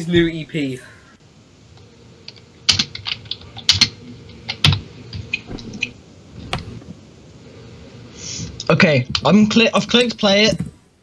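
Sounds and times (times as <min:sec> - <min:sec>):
keyboard keys clicking: 0:02.3 - 0:05.9.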